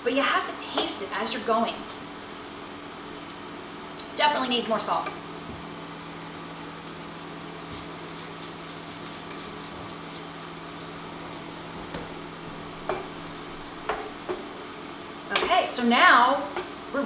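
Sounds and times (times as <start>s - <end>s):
steady electrical hum: 0.0s - 17.0s
salt container shaking: 7.7s - 11.0s.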